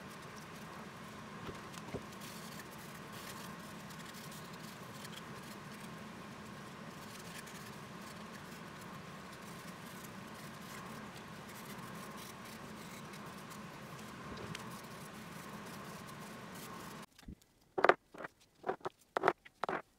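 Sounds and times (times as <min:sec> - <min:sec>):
steady low hum: 0:00.0 - 0:19.9
gloved hands rustling wood pieces: 0:17.6 - 0:19.9.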